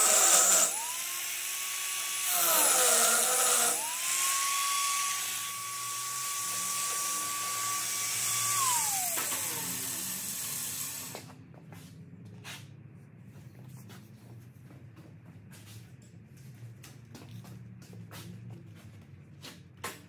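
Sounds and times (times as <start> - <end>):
electric grinder on metal: 0.0 - 11.2.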